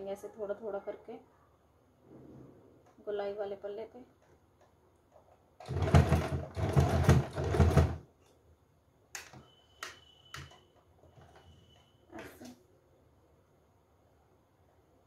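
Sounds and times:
sewing machine stitching: 0:05.6 - 0:08.0.

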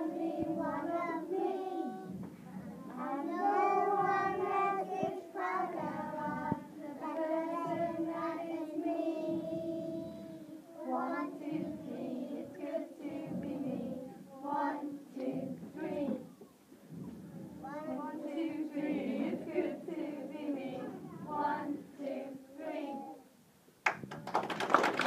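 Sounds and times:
children singing together: 0:00.0 - 0:16.3, 0:17.6 - 0:23.3.

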